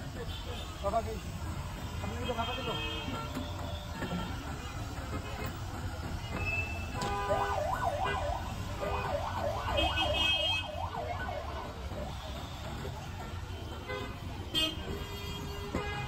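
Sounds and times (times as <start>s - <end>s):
traffic rumble: 0.0s - 16.0s
electronic siren yelping: 7.3s - 11.9s.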